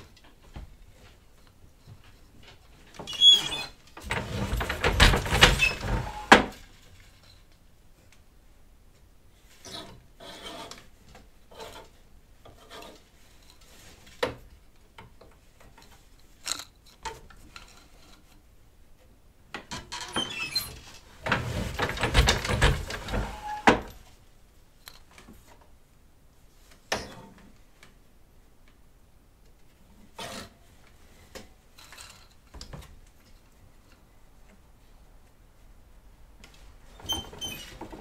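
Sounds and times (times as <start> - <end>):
loom clattering and thumping: 1.9 - 7.2, 19.6 - 24.1, 37.0 - 38.0
wooden loom knocking and clicking: 4.0 - 6.6, 21.2 - 24.0.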